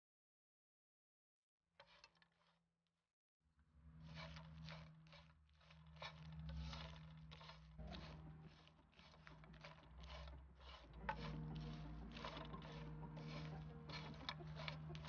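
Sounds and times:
spatula scraping food in a pan: 0:01.8 - 0:02.5, 0:04.0 - 0:15.0
low steady hum: 0:05.7 - 0:15.0.

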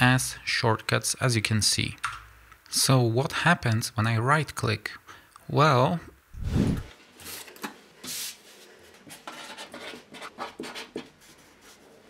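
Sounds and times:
marker pen writing on paper: 0:09.3 - 0:11.4.

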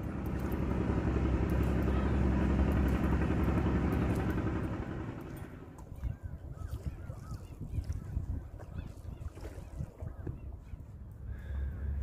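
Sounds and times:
passing vehicle engine hum: 0:00.0 - 0:05.8.

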